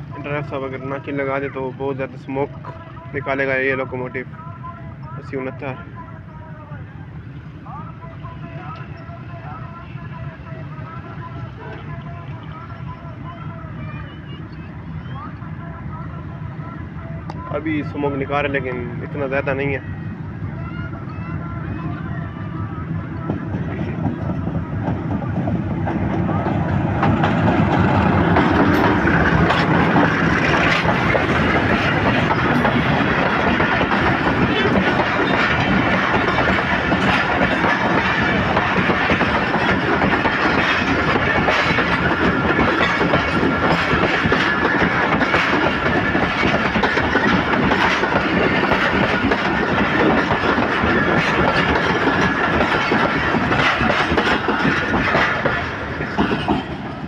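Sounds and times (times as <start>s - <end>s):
train wheels clattering over rail joints: 23.2s - 57.0s.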